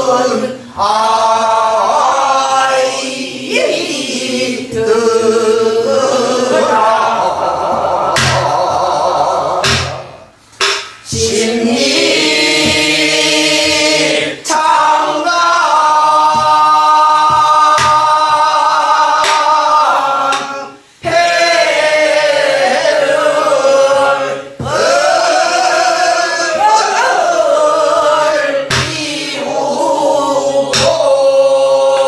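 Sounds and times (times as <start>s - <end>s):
group singing a folk song: 0.0s - 32.0s
sharp knocks: 7.7s - 8.9s, 9.6s - 14.7s, 15.6s - 22.0s, 23.8s - 26.0s, 28.7s - 29.2s, 30.7s - 31.1s.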